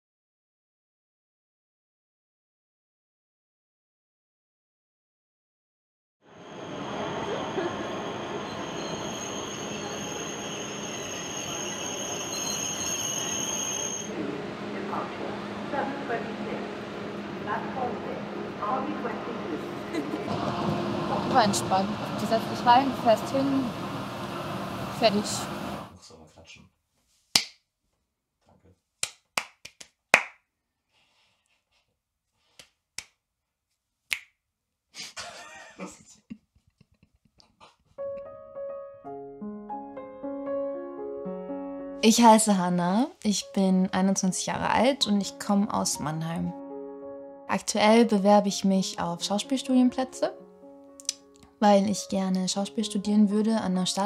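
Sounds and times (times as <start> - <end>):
high squeal of train wheels: 6.3 - 14.1
rush of train and hall noise: 6.3 - 25.9
finger snaps: 29.0 - 30.4, 51.0 - 51.3.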